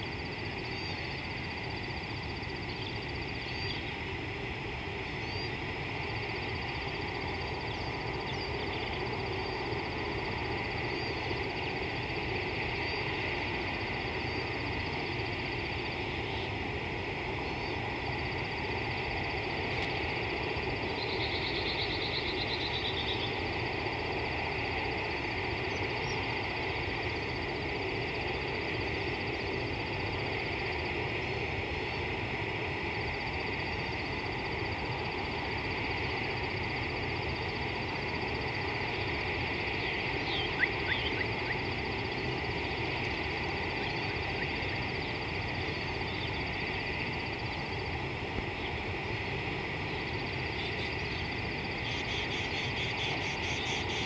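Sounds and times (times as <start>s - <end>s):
hissing chorus of calling animals: 2.4s - 54.0s
rapid pulsed animal call: 39.7s - 42.6s.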